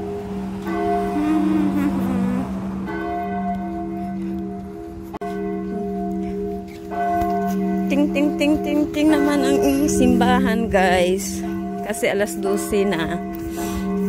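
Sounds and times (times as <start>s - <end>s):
church bells ringing: 0.0s - 1.6s, 2.7s - 14.0s.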